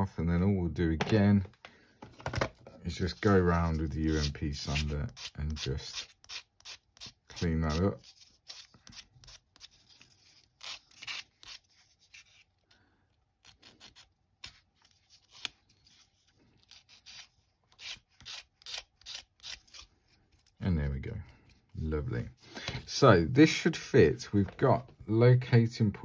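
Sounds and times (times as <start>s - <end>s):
plastic part rubbed on sanding stick: 3.0s - 12.5s.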